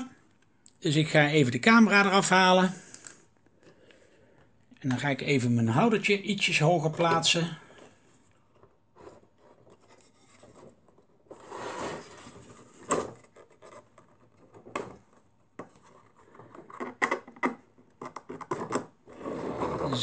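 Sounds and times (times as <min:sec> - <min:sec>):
scraping and rubbing: 0:08.5 - 0:17.0, 0:18.0 - 0:20.0.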